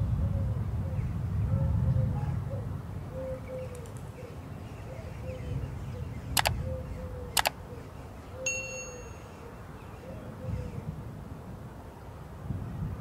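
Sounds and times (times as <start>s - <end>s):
bell ding: 8.5s - 9.3s.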